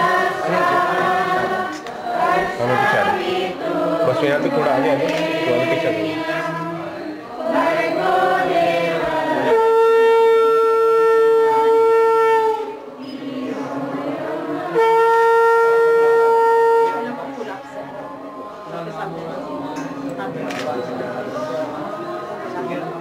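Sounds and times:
voices chanting together: 0:00.0 - 0:11.8, 0:12.4 - 0:23.0
conch shell blown: 0:09.4 - 0:12.9, 0:14.6 - 0:17.5.

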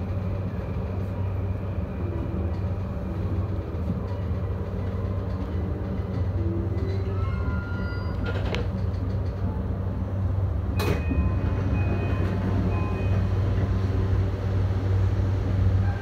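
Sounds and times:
train equipment humming: 0:00.0 - 0:16.0.

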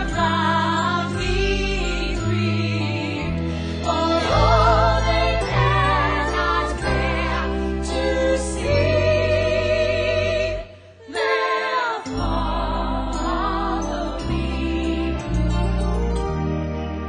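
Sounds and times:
sustained accompaniment: 0:00.1 - 0:17.0.

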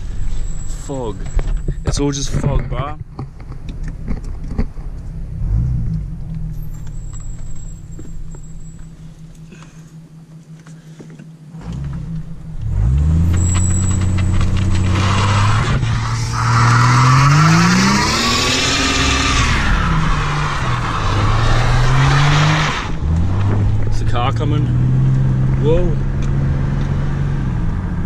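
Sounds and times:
tyres spinning and squealing: 0:00.0 - 0:03.4, 0:06.6 - 0:10.5, 0:11.7 - 0:23.7
engine at high revs: 0:11.5 - 0:27.7.

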